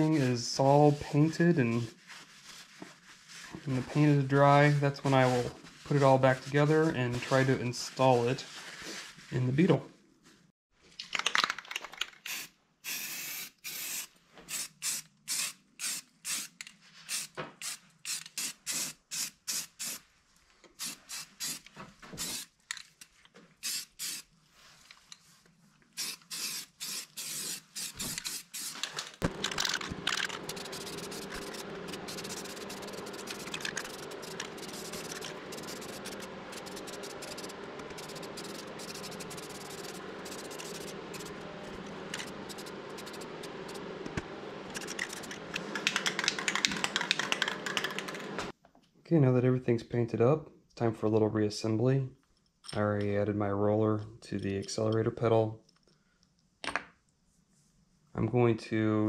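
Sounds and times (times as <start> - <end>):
spray can hissing: 12.3 - 20.0, 20.8 - 21.6, 22.2 - 22.5, 23.6 - 24.3, 26.0 - 43.8
steady low hum: 29.2 - 48.2.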